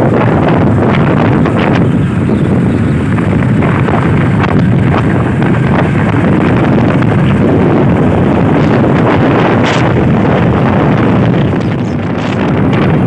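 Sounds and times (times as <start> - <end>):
motorcycle engine running: 0.0 - 13.0
wind rush on microphone: 0.0 - 13.0.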